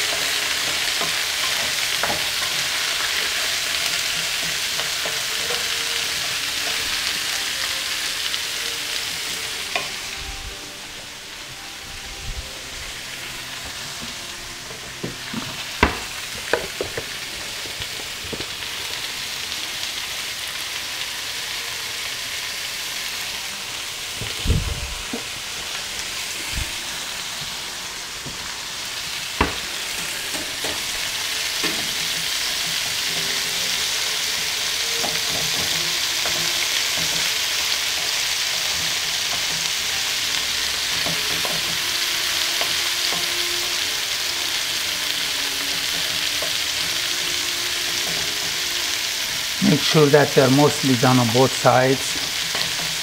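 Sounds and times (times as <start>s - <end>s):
zucchini sizzling in oil: 0.0s - 53.0s
wooden spoon stirring: 13.2s - 18.6s.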